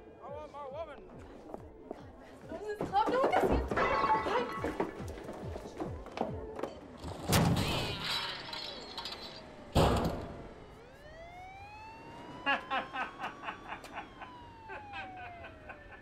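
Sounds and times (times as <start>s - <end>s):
police siren wailing: 8.0s - 16.0s.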